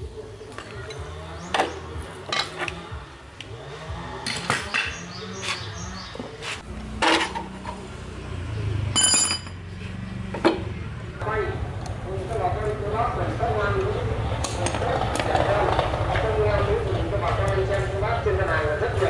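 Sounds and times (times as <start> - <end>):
metal tools clinking: 9.0 - 9.6
ringing metallic clink: 9.0 - 9.6.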